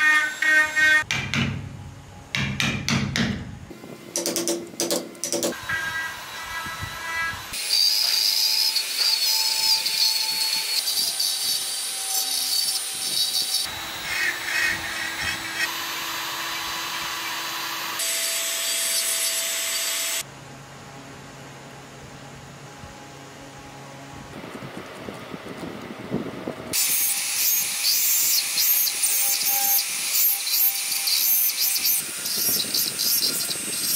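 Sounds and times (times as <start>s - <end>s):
rotary tool grinding wood: 5.5s - 20.2s, 26.7s - 33.9s.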